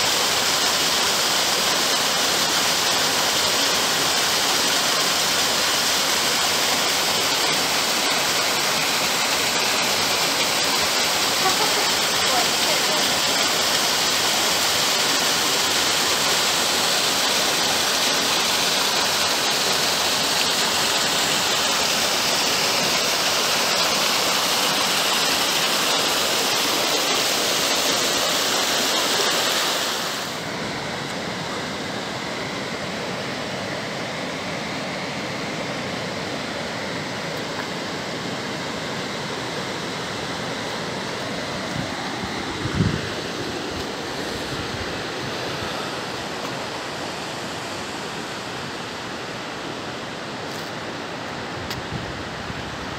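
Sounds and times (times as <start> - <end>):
running water: 0.0 - 33.5
waterfall rushing: 0.0 - 52.9.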